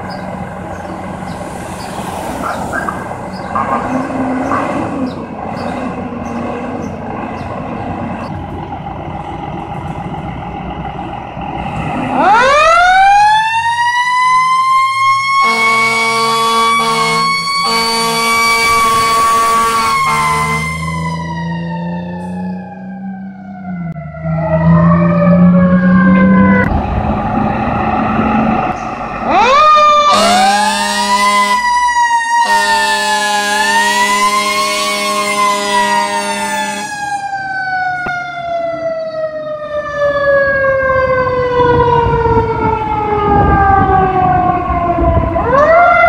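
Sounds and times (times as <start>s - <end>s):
diesel engines idling: 0.0s - 13.6s, 15.1s - 24.6s, 25.2s - 42.2s
mechanical siren wailing: 12.0s - 27.6s, 28.3s - 46.0s
air horn blasts: 15.4s - 20.9s, 30.0s - 31.8s, 32.4s - 37.1s.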